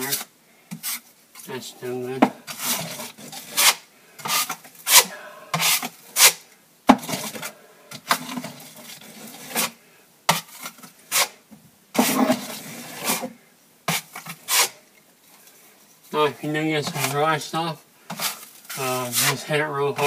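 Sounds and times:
taping knife scraping wall: 2.4s - 11.4s, 12.0s - 13.3s, 13.9s - 14.8s, 16.8s - 17.3s, 18.1s - 20.0s.

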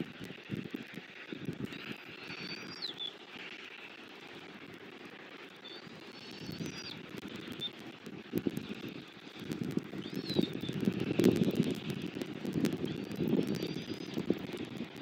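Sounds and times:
rustling and crackling of sticks: 0.0s - 15.0s
bird whistled call: 10.0s - 10.7s, 13.6s - 14.2s.

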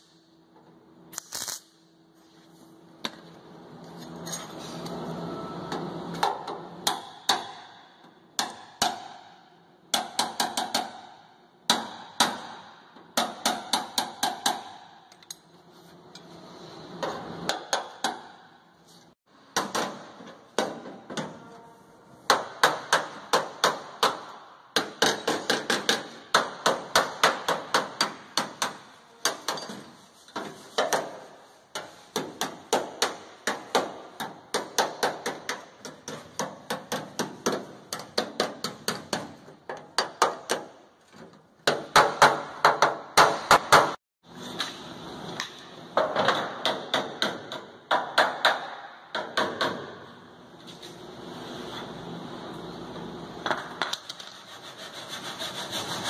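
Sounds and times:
hammer beating on sheet steel: 6.2s - 15.0s, 17.5s - 18.6s, 19.5s - 21.3s, 22.2s - 29.9s, 30.7s - 40.8s, 41.6s - 44.0s, 45.5s - 50.1s
hammer striking chisel on metal: 8.4s - 15.4s, 22.3s - 29.9s.

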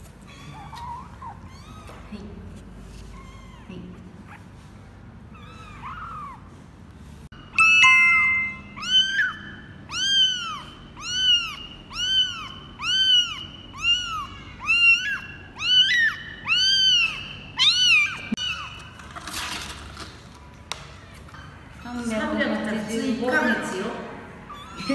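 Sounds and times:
kitten meowing: 5.4s - 6.4s, 8.7s - 18.8s, 24.5s - 24.9s.

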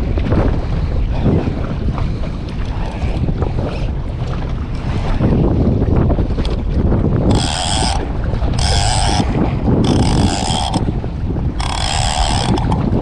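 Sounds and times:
sea noise: 0.0s - 13.0s
wind: 0.0s - 13.0s
fishing reel buzzing: 7.3s - 11.0s, 11.6s - 13.0s.

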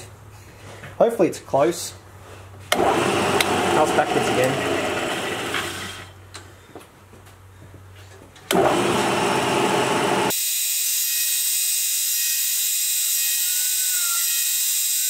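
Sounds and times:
spindle motor cutting plastic: 2.8s - 6.1s, 12.2s - 15.0s
high-pitched motor whine: 8.8s - 15.0s.

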